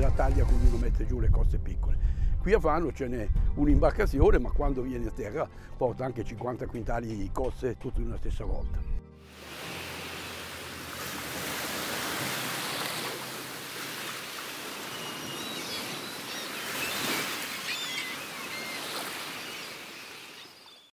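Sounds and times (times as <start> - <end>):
sea surf washing: 9.3 - 20.8
short bird calls: 14.5 - 20.9.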